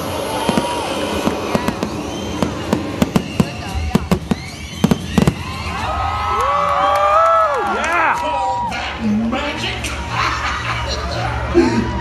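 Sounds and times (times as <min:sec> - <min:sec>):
fireworks cracking and popping: 0:00.0 - 0:05.9.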